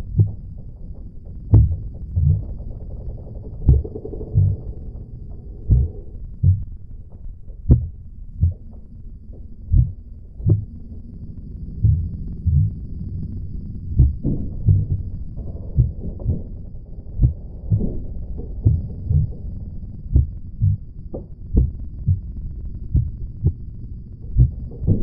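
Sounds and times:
steady low hum: 0:00.0 - 0:25.0
heartbeat thumps: 0:01.5 - 0:02.6, 0:03.5 - 0:06.8, 0:07.6 - 0:08.9, 0:09.6 - 0:10.8, 0:11.8 - 0:12.9, 0:13.9 - 0:16.5, 0:17.2 - 0:23.7, 0:24.3 - 0:25.0.

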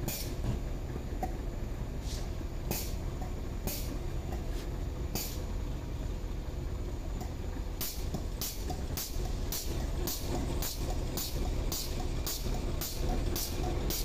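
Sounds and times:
short sharp air hisses: 0:00.0 - 0:00.4, 0:02.0 - 0:03.0, 0:03.7 - 0:05.5
steady low rumble: 0:00.0 - 0:14.0.

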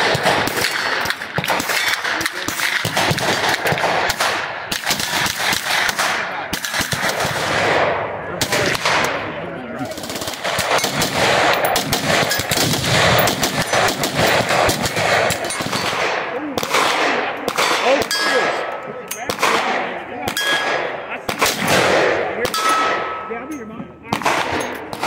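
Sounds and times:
gunshots echoing: 0:00.0 - 0:25.0
steel targets ringing: 0:22.5 - 0:23.6.

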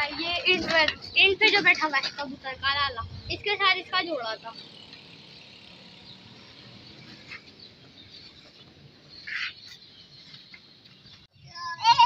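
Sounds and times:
faint outdoor background: 0:00.0 - 0:12.0
high bird chirp: 0:04.4 - 0:11.8.

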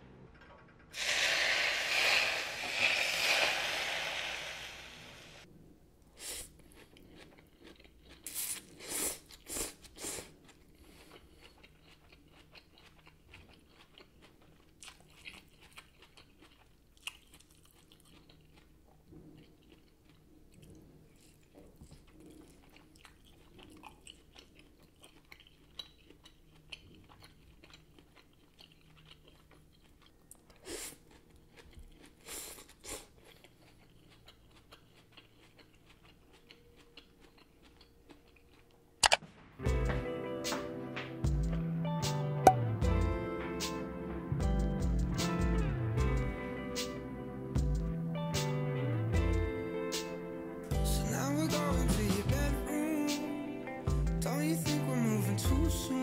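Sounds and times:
hot oil sizzling: 0:01.0 - 0:05.4
chewing and crunching food: 0:06.3 - 0:39.0.

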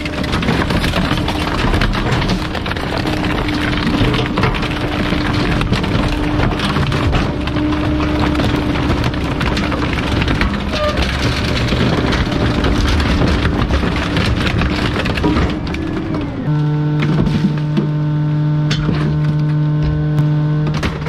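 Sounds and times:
hydraulic whine: 0:00.0 - 0:21.0.

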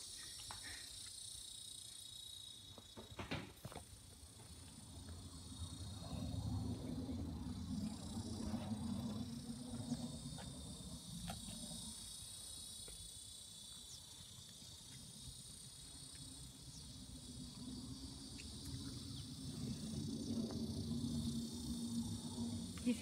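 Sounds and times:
high-pitched insect chorus: 0:00.0 - 0:23.0
low rumble: 0:04.8 - 0:11.9, 0:16.4 - 0:23.0.

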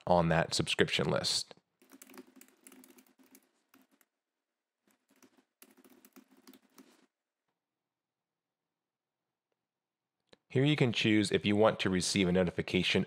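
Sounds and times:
faint keyboard typing: 0:01.8 - 0:04.2, 0:04.8 - 0:07.1.

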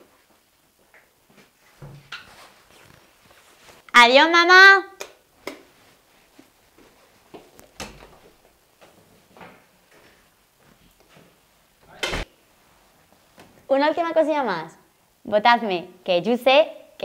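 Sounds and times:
footsteps: 0:05.5 - 0:12.3
door shutting with a thud: 0:11.9 - 0:12.3.

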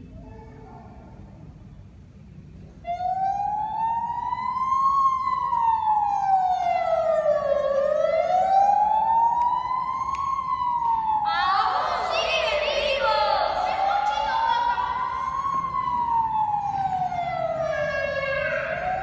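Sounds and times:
siren wailing over loudspeakers: 0:02.8 - 0:19.0
busy high-pitched sound: 0:11.3 - 0:19.0.

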